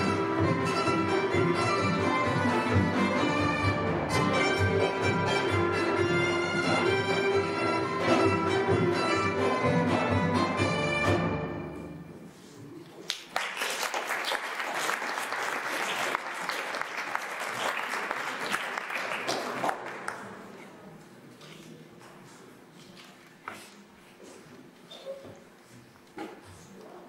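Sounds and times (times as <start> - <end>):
folk band playing: 0.0 - 12.3
audience applauding: 13.0 - 20.4.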